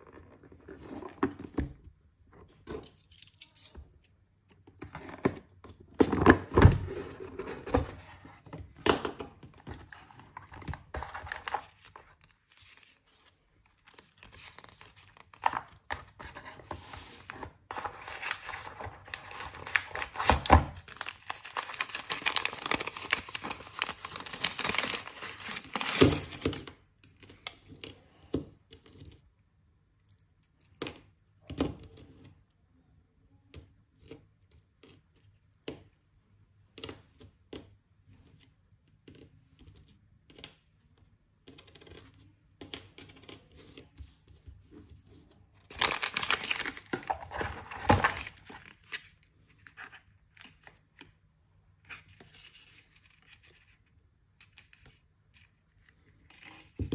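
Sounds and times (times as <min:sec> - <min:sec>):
paper pouch crinkling: 0:18.1 - 0:25.8, 0:45.7 - 0:49.0.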